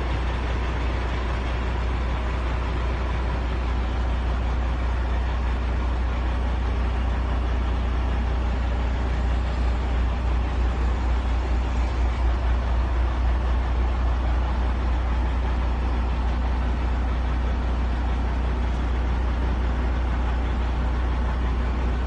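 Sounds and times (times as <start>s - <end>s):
diesel truck engine idling: 0.0s - 22.0s.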